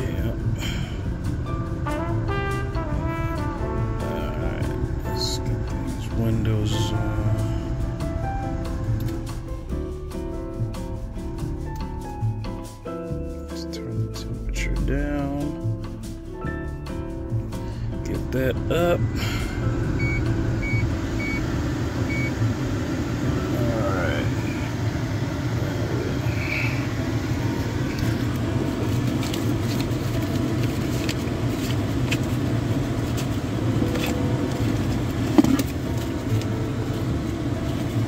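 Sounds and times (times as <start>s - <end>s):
car cabin hum: 18.0s - 38.0s.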